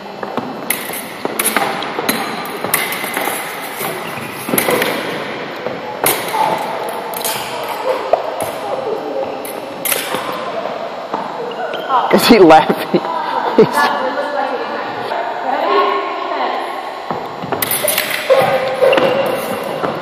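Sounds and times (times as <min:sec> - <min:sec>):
fencing blades clicking: 0:00.7 - 0:05.0, 0:06.0 - 0:07.8, 0:17.6 - 0:19.8.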